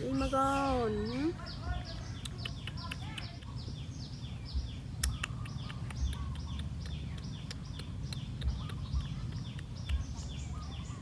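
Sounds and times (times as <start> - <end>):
small birds chirping: 0.0 - 11.0
sharp clicks: 2.2 - 3.7, 5.0 - 10.1.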